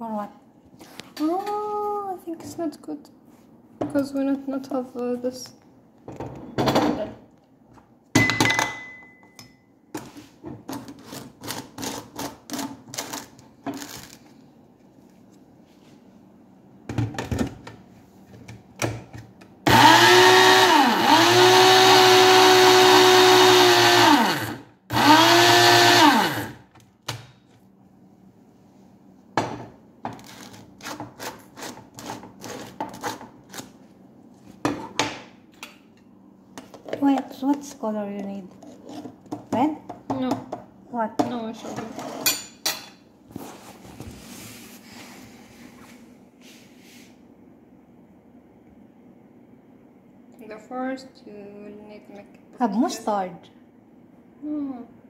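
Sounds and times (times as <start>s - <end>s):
small blender motor running: 19.7s - 26.6s.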